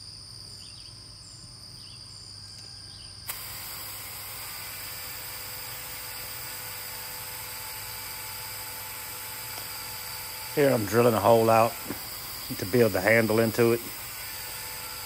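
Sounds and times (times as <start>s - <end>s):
magnetic drill cutting steel: 3.3s - 15.0s.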